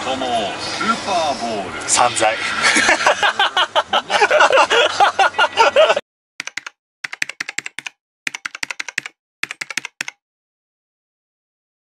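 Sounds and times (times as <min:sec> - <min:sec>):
keyboard key clicks: 0:06.4 - 0:10.2.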